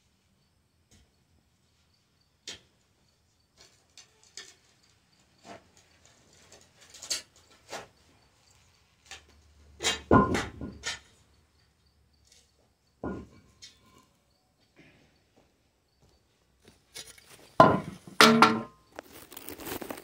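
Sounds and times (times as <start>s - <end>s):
shovel scraping dirt: 16.9s - 20.0s.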